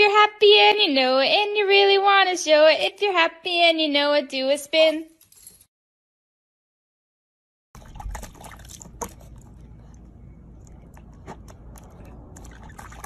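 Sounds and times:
low background rumble: 7.8 - 13.0
puppy splashing in water: 7.8 - 13.0
water sloshing and dripping: 7.8 - 13.0.

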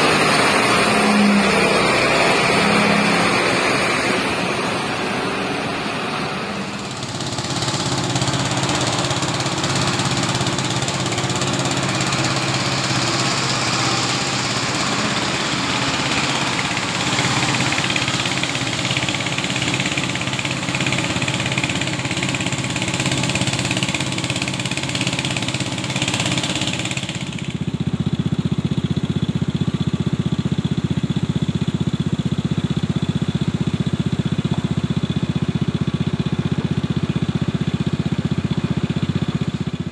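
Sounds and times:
diesel truck engine: 0.0 - 39.9.

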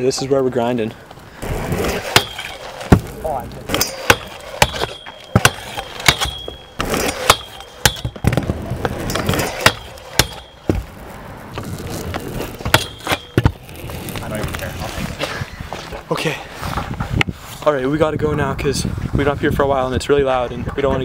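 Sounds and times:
metallic scrape: 1.3 - 15.2.

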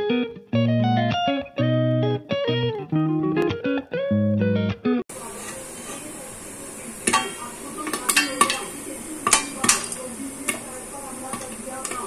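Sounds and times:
corn kernels popping in pot: 5.1 - 12.0
faint oil sizzle: 5.1 - 12.0.

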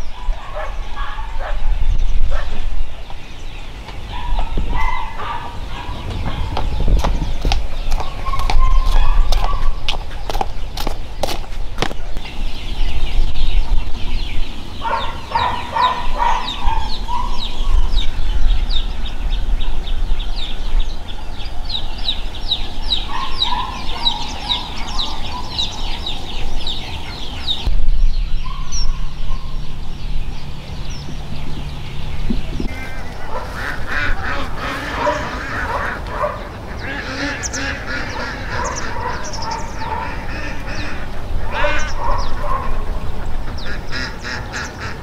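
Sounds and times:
poultry clucking or honking: 14.8 - 17.2, 32.7 - 45.0.

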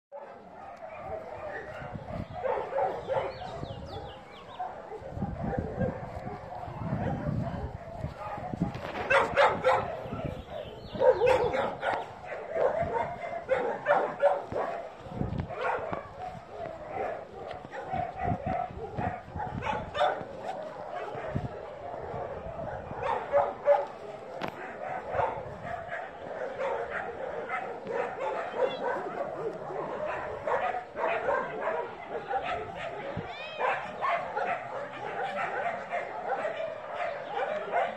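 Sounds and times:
puppy yapping: 8.2 - 14.8, 24.6 - 37.9.

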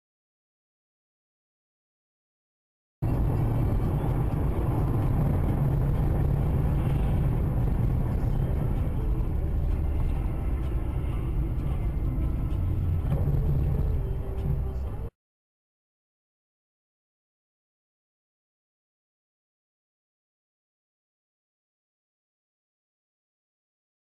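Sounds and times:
car engine and tyres rumbling: 3.0 - 15.1.

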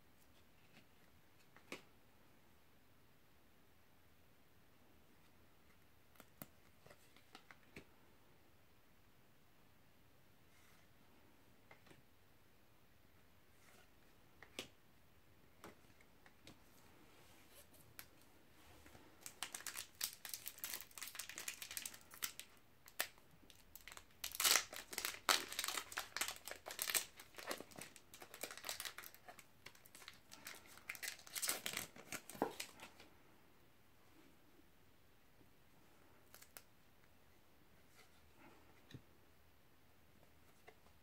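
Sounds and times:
plastic wrapper crinkling and tearing: 19.2 - 32.8.

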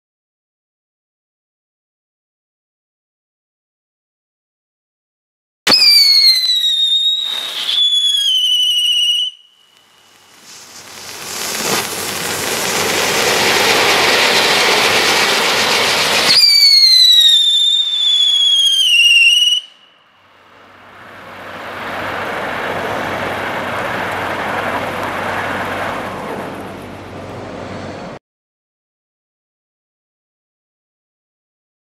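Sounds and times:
firework spark fountain hiss: 5.7 - 19.7
firework whistle falling in pitch: 5.7 - 20.0.

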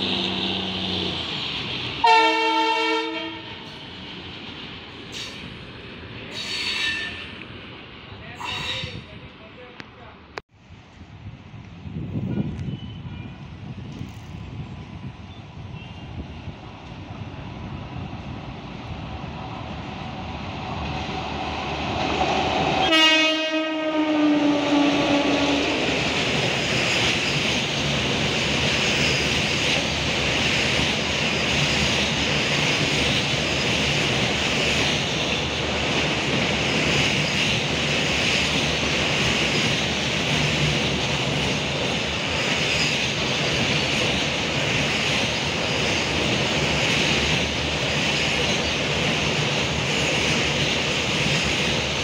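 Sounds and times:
train wagons rumbling on rails: 0.0 - 9.7, 11.2 - 52.0
locomotive horn: 2.0 - 3.7, 22.8 - 25.9.

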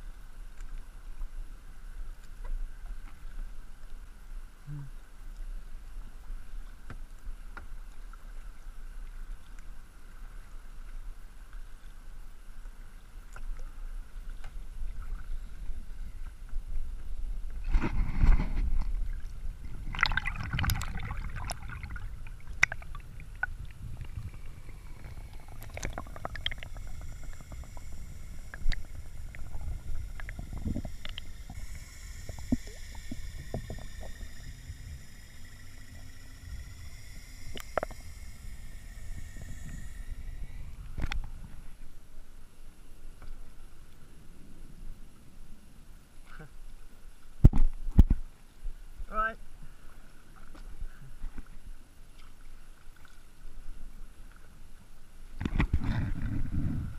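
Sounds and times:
water splashing against kayak: 17.5 - 41.9
muffled underwater gurgling: 19.6 - 41.7.

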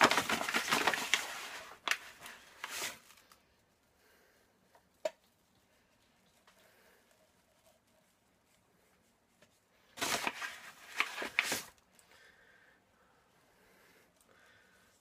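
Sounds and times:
paper bag crinkling: 0.0 - 3.5, 9.8 - 11.9.

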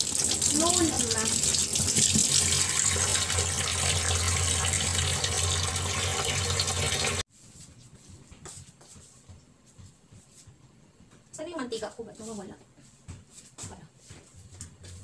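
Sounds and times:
tap running into sink: 0.0 - 7.2.

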